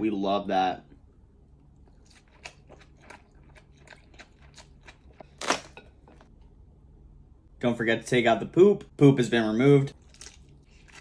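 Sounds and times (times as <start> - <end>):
person chewing wetly: 1.8 - 5.4.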